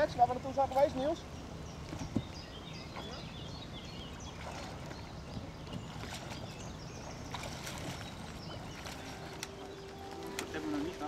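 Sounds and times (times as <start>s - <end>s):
water splashing from swimmer: 7.2s - 9.6s.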